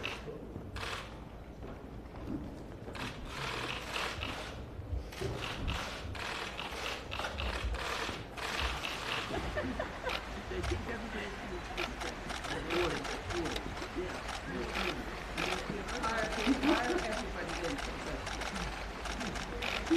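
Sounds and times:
camera shutters clicking: 0:00.0 - 0:01.2, 0:03.0 - 0:09.5, 0:11.7 - 0:19.9.

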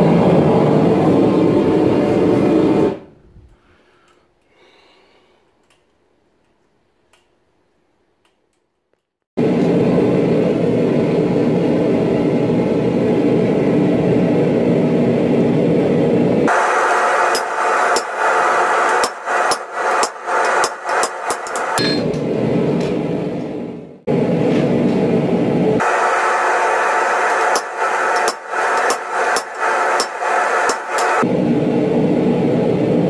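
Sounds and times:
forge roaring: 0:00.0 - 0:03.2
hammer striking steel on anvil: 0:16.8 - 0:22.2, 0:27.3 - 0:31.2.

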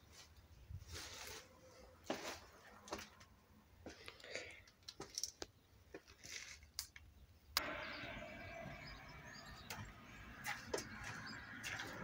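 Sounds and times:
distant birds chirping: 0:03.0 - 0:12.0.

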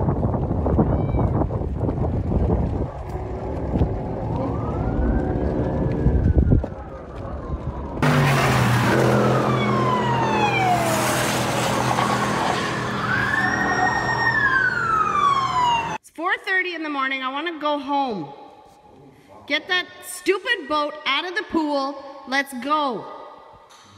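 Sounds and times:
emergency siren wailing: 0:02.8 - 0:16.0.

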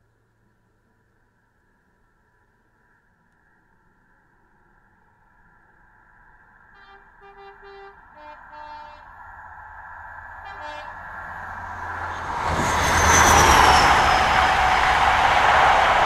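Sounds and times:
train running drone: 0:00.1 - 0:16.0
train two-tone horn: 0:06.8 - 0:09.1, 0:10.4 - 0:15.2.

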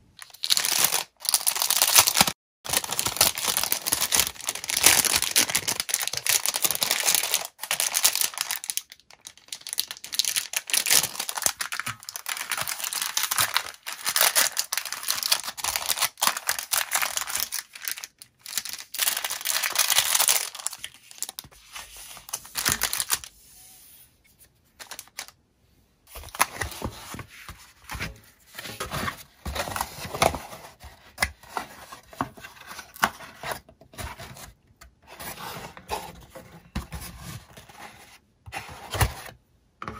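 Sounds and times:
packaging crinkling and tearing: 0:00.2 - 0:21.5, 0:22.2 - 0:23.3.

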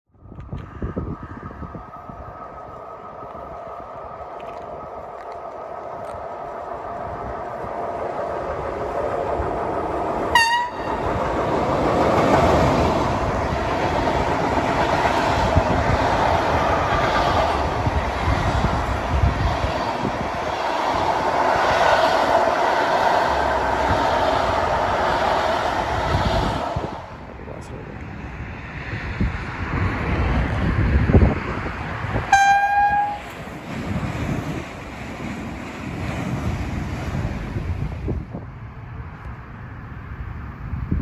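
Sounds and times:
electric locomotive approaching: 0:00.2 - 0:41.0
wheel and rail noise: 0:00.2 - 0:41.0
train horn blast: 0:10.3 - 0:11.0, 0:32.3 - 0:33.4.

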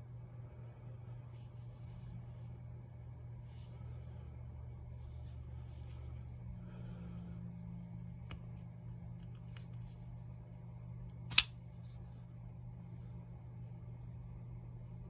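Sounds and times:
folding knife snapping open: 0:11.3 - 0:11.5.

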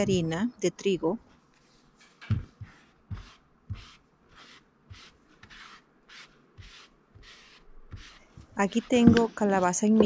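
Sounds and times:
spatula scraping dry flour: 0:02.7 - 0:10.0.

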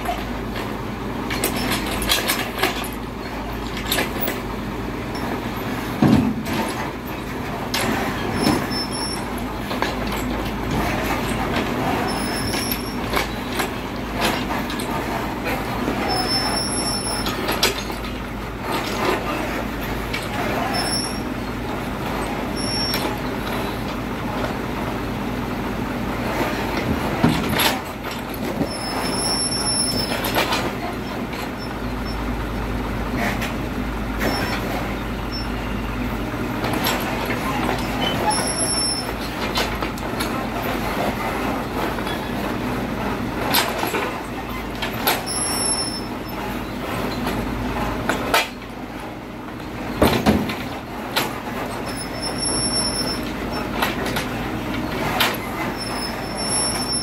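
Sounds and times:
excavator engine running: 0:00.0 - 0:57.0
short high squeals: 0:16.0 - 0:17.5, 0:20.6 - 0:21.4, 0:28.7 - 0:30.3, 0:37.5 - 0:39.2, 0:51.8 - 0:53.6, 0:55.4 - 0:57.0.

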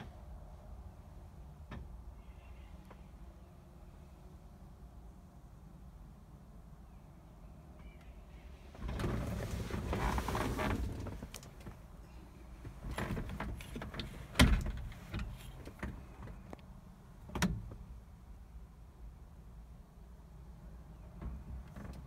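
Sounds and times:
rustling handling noise: 0:08.8 - 0:11.8.

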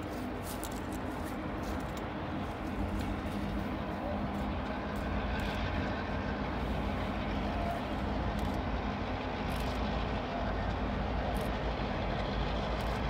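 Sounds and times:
diesel locomotive engines droning: 0:00.0 - 0:13.0.

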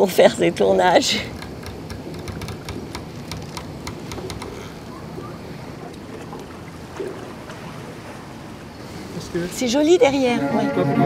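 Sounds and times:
motorboat engine rumble: 0:00.0 - 0:11.0
water splashing along hull: 0:00.0 - 0:11.0
small clicks: 0:01.3 - 0:04.8.

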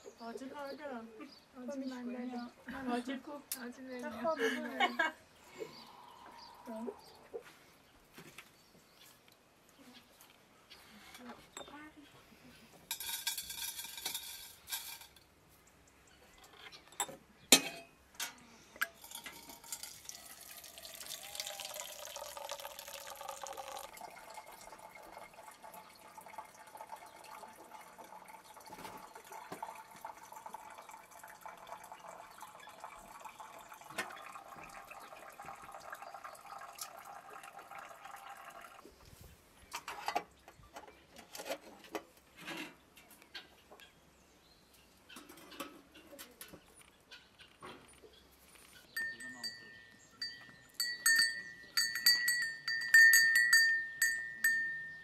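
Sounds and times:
hot water pouring from a tap: 0:18.9 - 0:38.9
glass or metal clinks: 0:48.9 - 0:55.0.

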